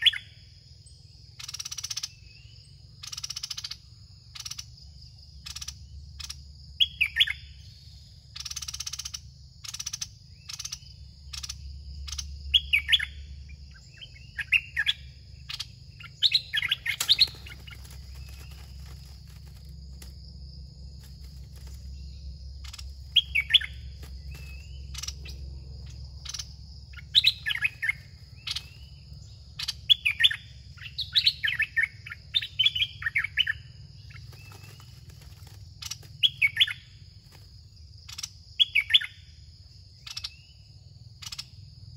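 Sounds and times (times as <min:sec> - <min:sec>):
bulbuls calling: 0:08.3 - 0:20.2, 0:21.0 - 0:37.0.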